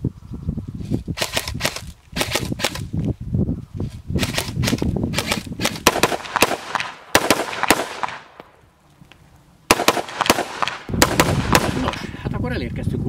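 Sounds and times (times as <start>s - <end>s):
rifle shots with ringing echo: 5.2s - 8.4s, 9.7s - 12.1s.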